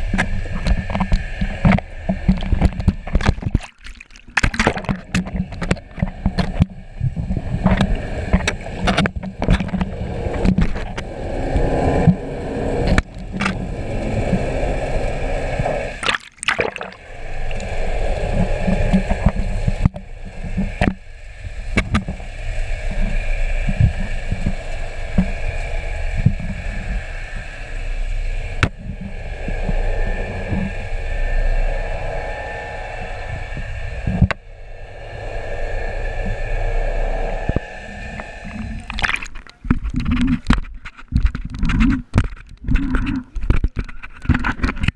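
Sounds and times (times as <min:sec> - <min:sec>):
water splashing: 0:00.0 - 0:11.0, 0:15.7 - 0:27.8, 0:37.5 - 0:44.9
muffled underwater noise: 0:00.0 - 0:44.9.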